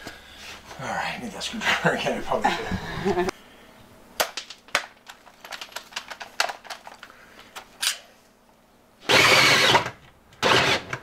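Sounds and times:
drill cutting into plywood: 9.0 - 11.0.

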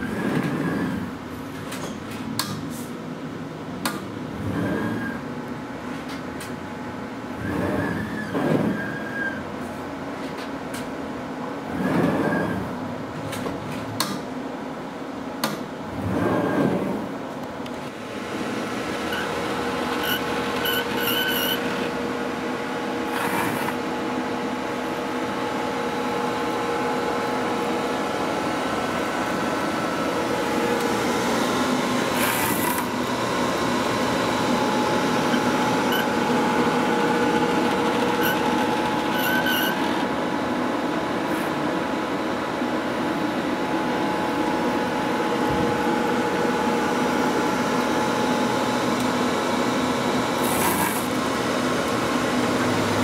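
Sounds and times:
machine hum with motor whine: 0.0 - 53.0
short squeaks and clicks: 19.9 - 21.7, 35.3 - 36.2, 37.8 - 40.0.

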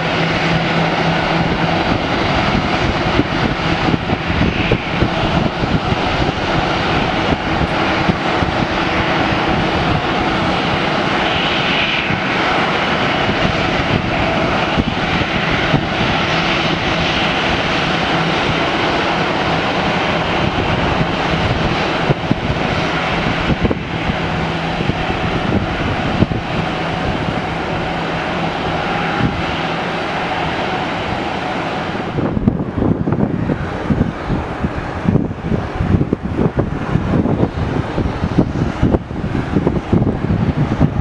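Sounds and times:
jet engines running: 0.0 - 41.0
low hum: 0.0 - 41.0.

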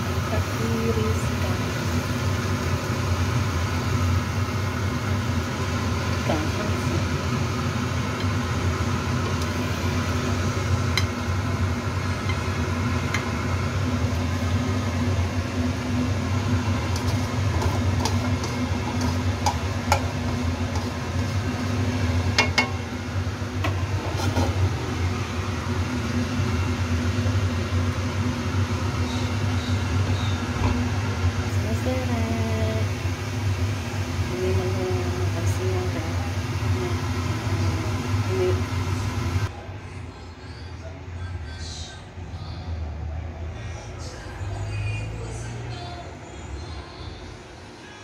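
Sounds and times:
kitchen fan humming: 0.0 - 48.0
spatula scraping a wok: 16.9 - 21.6, 23.7 - 24.6.

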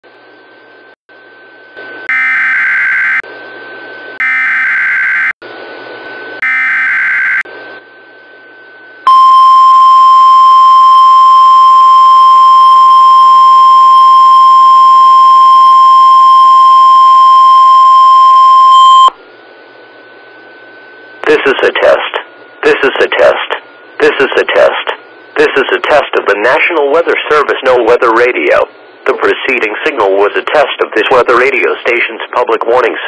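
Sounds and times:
steady warning alarm tone: 0.8 - 5.4, 6.4 - 19.2
radio hiss: 21.2 - 33.0.

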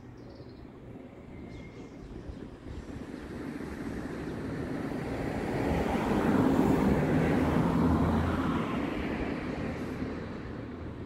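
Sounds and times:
road vehicle passing: 2.8 - 11.0.

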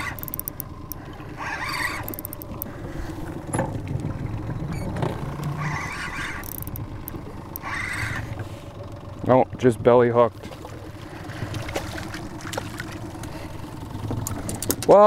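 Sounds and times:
fishing reel cranking: 0.0 - 2.8, 5.4 - 8.1
steady low hum: 0.0 - 15.0.

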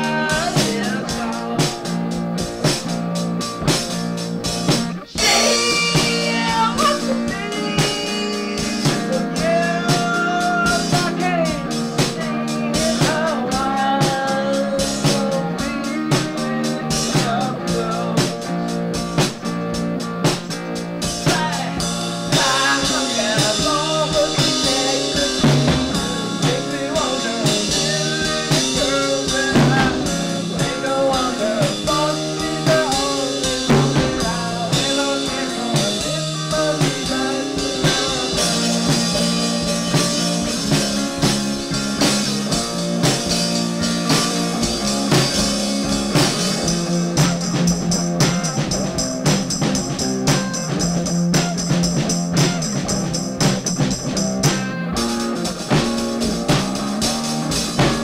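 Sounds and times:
folk-rock band playing: 0.0 - 58.0
cymbal or tambourine shimmer: 5.2 - 7.0.

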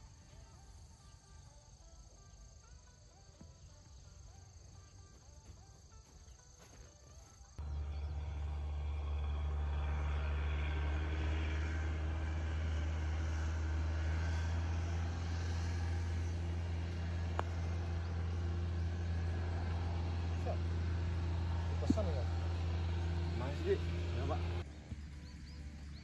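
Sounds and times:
engine drone: 7.5 - 26.0.

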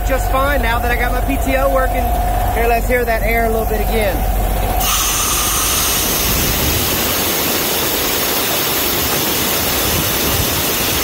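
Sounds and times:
compressor and truck engine running: 0.0 - 11.0
compressed air hissing from valve: 4.8 - 7.9.

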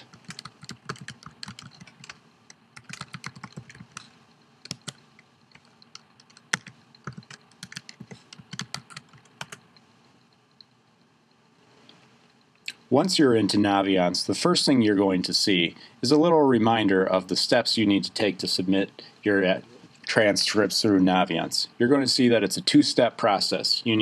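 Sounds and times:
keyboard typing: 0.0 - 9.7.

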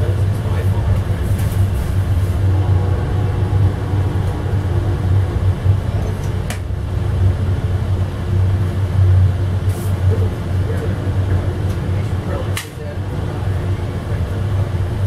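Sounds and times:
passenger train rumble: 0.0 - 15.0.

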